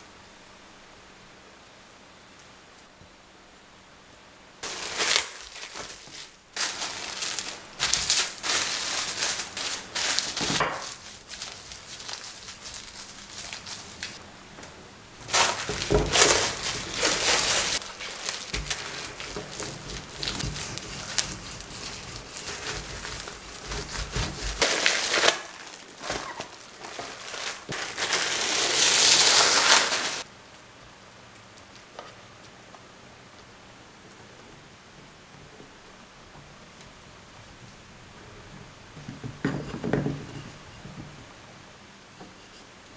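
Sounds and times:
plastic cling film crinkling: 4.6 - 14.2, 15.2 - 30.3
soft handling of dough: 4.6 - 30.3
rolling pin rolling dough: 7.7 - 25.3.

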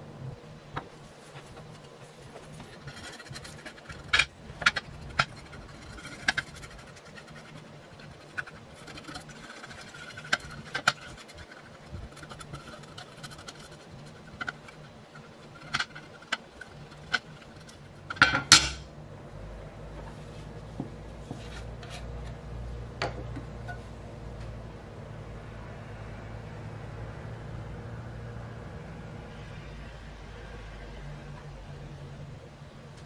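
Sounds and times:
paintbrush scrubbing metal: 1.0 - 18.2.

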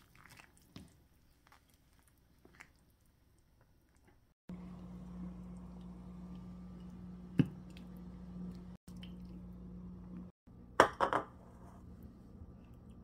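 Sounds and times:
steady low hum: 4.5 - 10.8.

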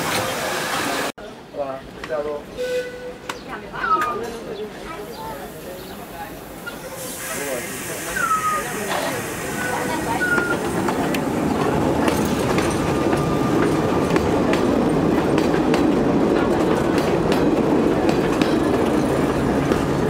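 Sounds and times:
tram rumbling past: 0.0 - 20.0
wheels clattering on rails: 8.8 - 20.0.

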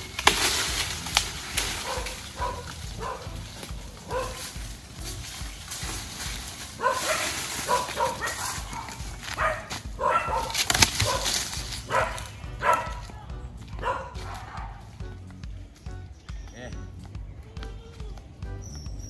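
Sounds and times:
branches crashing onto ground: 0.0 - 14.5.

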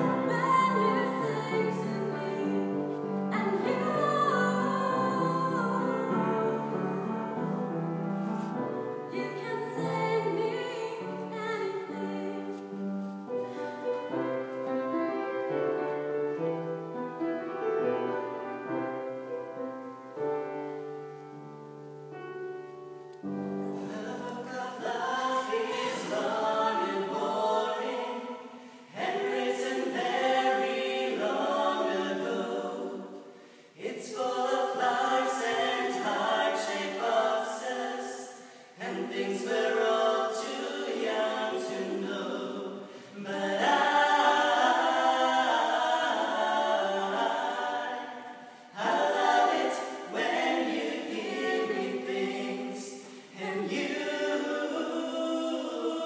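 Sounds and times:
man and woman singing duet: 0.0 - 7.2, 23.7 - 28.3.

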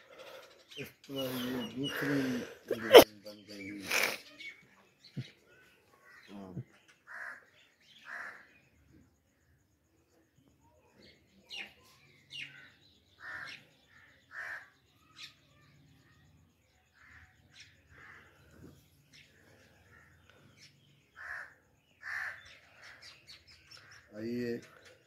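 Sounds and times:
small birds chirping: 0.0 - 25.0
crows cawing: 6.0 - 8.7, 12.4 - 15.4, 16.9 - 18.7, 19.6 - 24.3.

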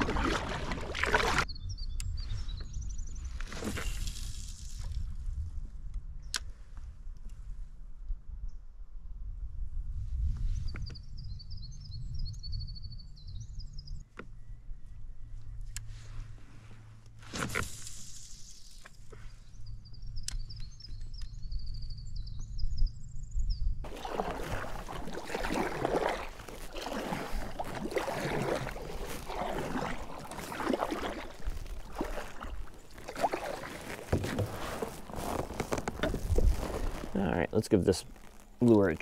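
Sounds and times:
paddle splashing water: 0.0 - 1.5, 23.9 - 39.0.

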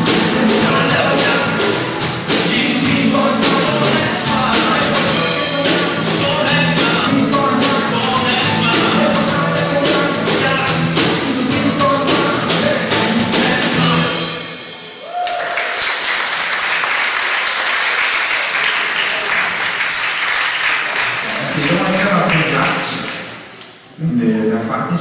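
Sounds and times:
live band guitars and drums: 0.0 - 15.1
audience applauding: 15.0 - 23.8.

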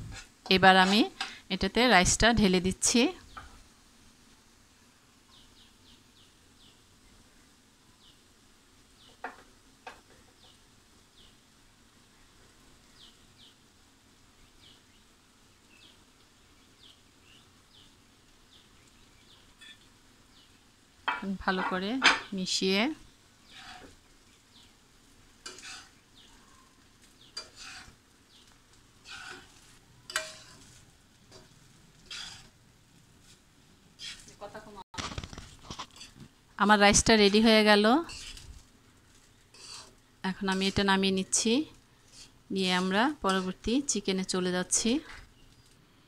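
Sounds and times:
metal spatula scraping a wok: 0.0 - 1.4, 23.4 - 24.1, 25.4 - 26.1, 27.0 - 28.0, 29.0 - 32.6, 34.0 - 34.5, 35.4 - 36.3, 36.9 - 41.0, 42.0 - 43.7
faint bird chirping: 14.3 - 20.8, 25.4 - 28.6.

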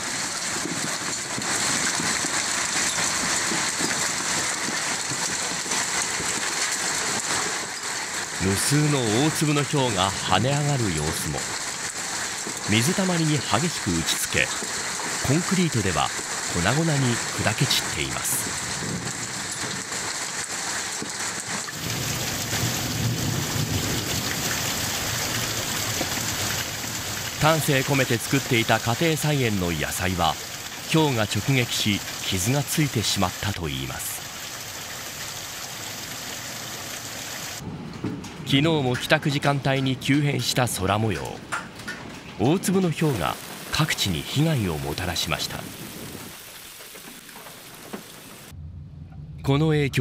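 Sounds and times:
hailstones striking ground: 0.0 - 48.6
heavy rain downpour: 0.0 - 48.6
deep rumble: 48.5 - 50.0.

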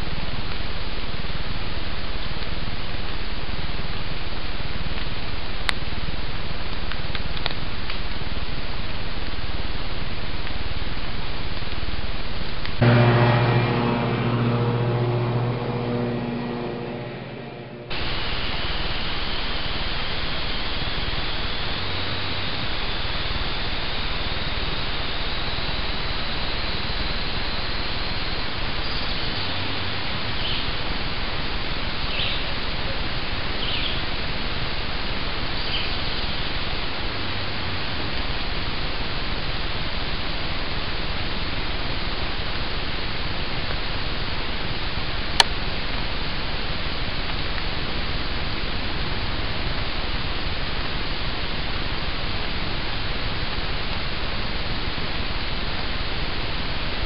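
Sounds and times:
microphone hiss: 12.7 - 22.4.

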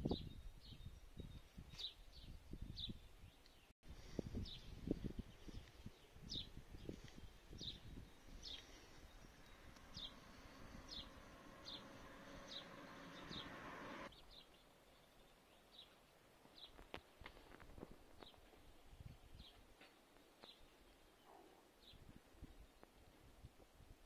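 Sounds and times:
faint steady hiss: 8.3 - 14.1.

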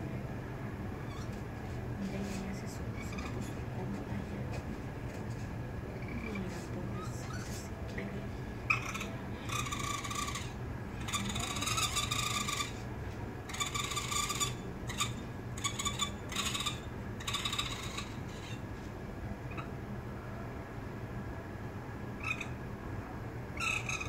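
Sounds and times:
raccoon kits crying: 8.7 - 12.8, 13.5 - 18.6, 22.2 - 22.6, 23.6 - 24.0.

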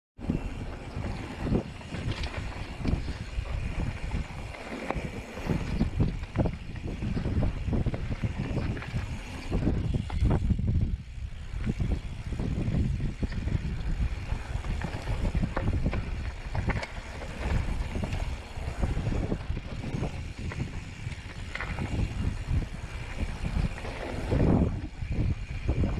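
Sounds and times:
tyres rolling over dirt and rock: 0.2 - 10.5, 11.4 - 25.9
wind buffeting microphone: 0.2 - 25.9
bike knocks and rattles: 11.5 - 25.9.

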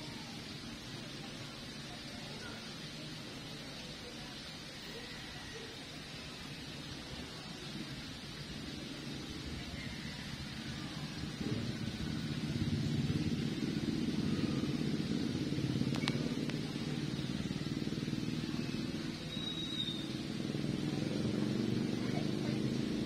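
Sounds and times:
motorcycle engine running: 8.3 - 23.0.

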